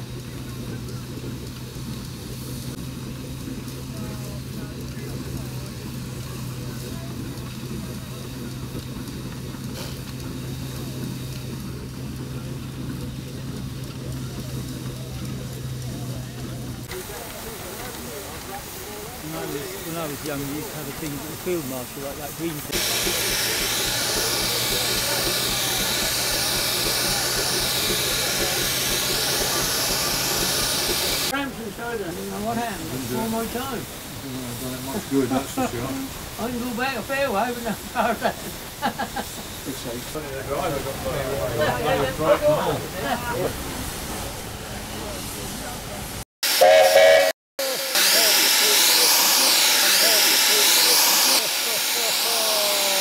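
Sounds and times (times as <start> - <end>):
threshing machinery humming: 0.0 - 36.9
steam hissing: 0.0 - 53.0.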